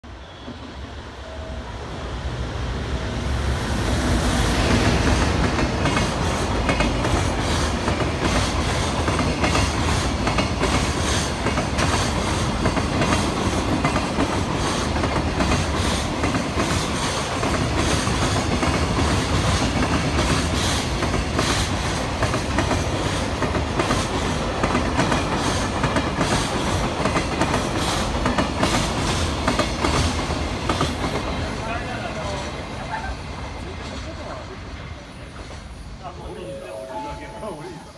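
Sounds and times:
freight train passing: 0.0s - 37.9s.

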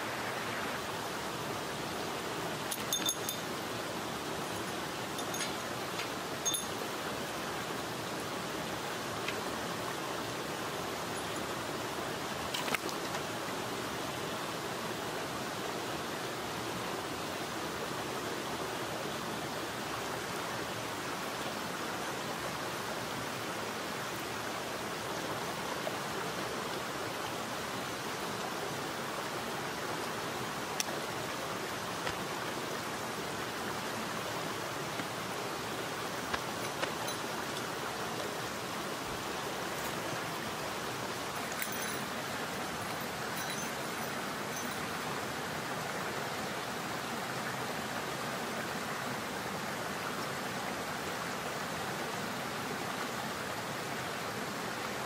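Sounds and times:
stream running over rocks: 0.0s - 55.0s
faint clicks of camping gear: 5.2s - 6.6s, 12.4s - 13.3s, 32.0s - 32.3s, 36.2s - 38.3s.

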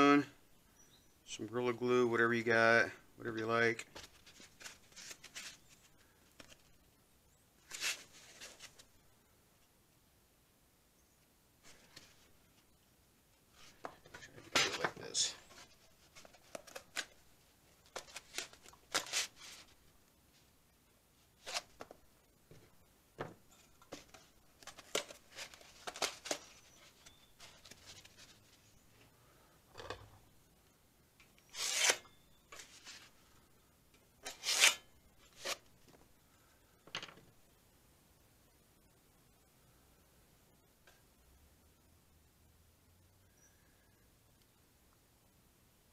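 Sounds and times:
hands rubbing and scraping sheet metal: 34.2s - 35.6s.

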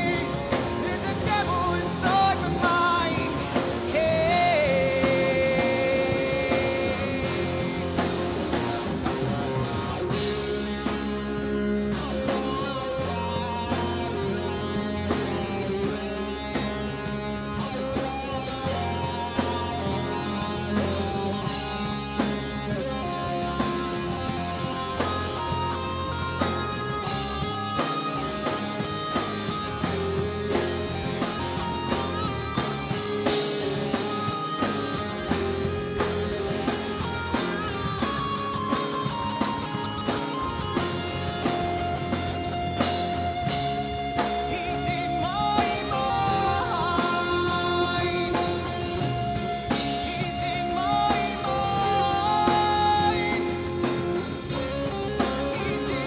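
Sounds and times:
person singing: 0.0s - 8.8s, 44.1s - 56.0s
bass guitar: 0.0s - 56.0s
drums: 0.0s - 56.0s
electric lead guitar: 0.0s - 56.0s.

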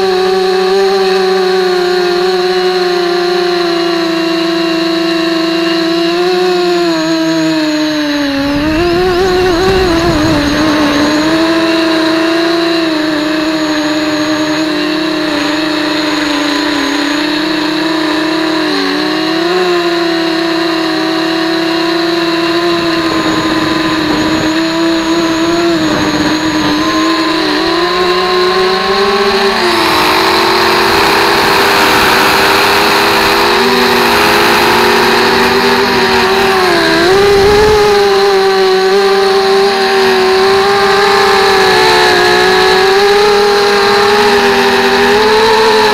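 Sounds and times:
electric motor and propeller whine: 0.0s - 45.9s
wind rushing: 8.1s - 12.5s, 35.8s - 38.2s.

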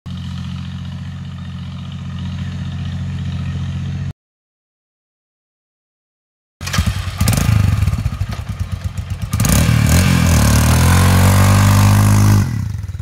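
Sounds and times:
motorcycle engine revving: 0.1s - 4.1s, 6.6s - 13.0s.

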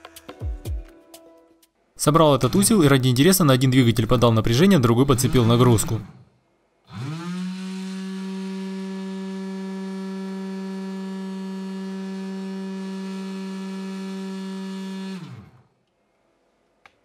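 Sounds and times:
electric motor whine: 6.9s - 15.7s.

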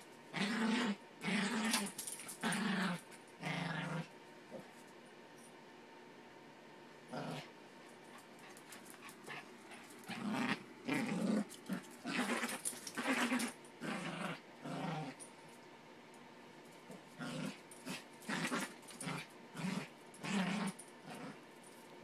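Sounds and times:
small dog growling: 0.3s - 4.6s, 7.1s - 7.5s, 8.4s - 15.2s, 16.9s - 21.4s.

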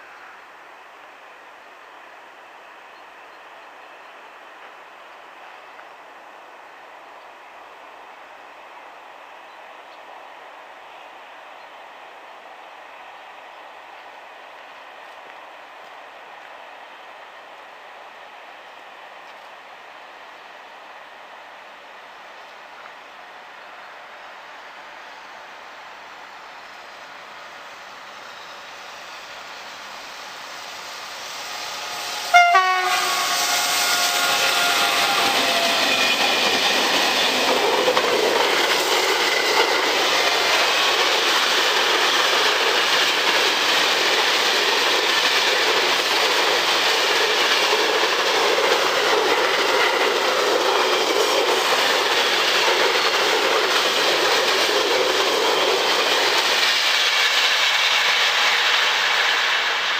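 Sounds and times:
train wheels rushing on rails: 0.0s - 59.9s
train horn blast: 32.0s - 36.1s.

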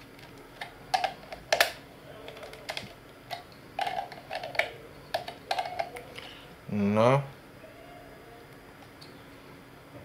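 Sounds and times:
plastic clicks and rattles: 0.2s - 6.1s.

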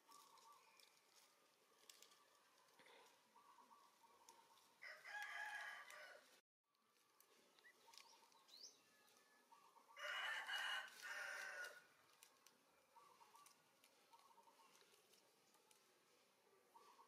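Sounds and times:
dry palm fronds crackling: 0.0s - 17.0s
rooster crowing: 4.8s - 6.3s, 10.0s - 11.8s.

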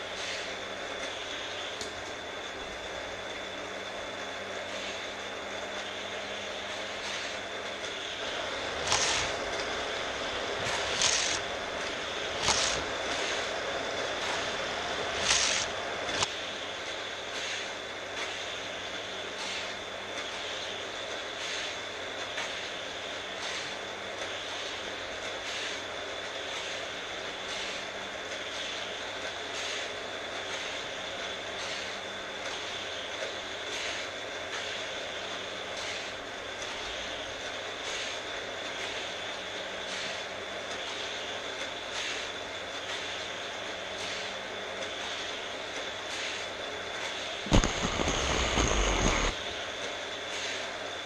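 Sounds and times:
toy booster whirring: 8.8s - 9.4s, 10.7s - 11.5s, 12.4s - 12.9s, 15.2s - 16.3s
toy cars zipping through booster: 10.8s - 11.4s, 12.4s - 12.8s, 15.2s - 15.7s.

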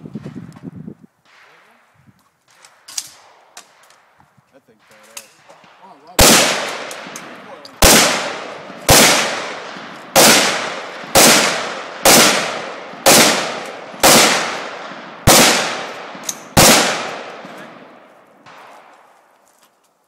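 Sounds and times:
gunshots with echo: 4.8s - 19.0s.

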